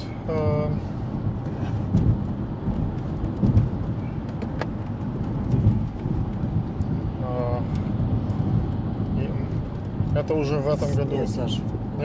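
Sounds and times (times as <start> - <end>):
car road and engine noise: 0.0 - 12.0
low thumps: 1.1 - 7.2.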